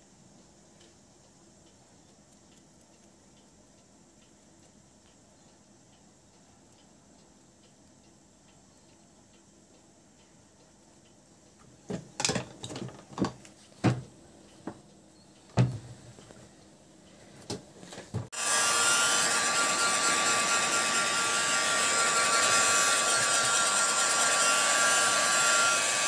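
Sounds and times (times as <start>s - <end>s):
knocks and taps of tools: 11.9s - 14.8s, 15.5s - 16.4s
heat gun blowing hiss: 18.3s - 26.0s.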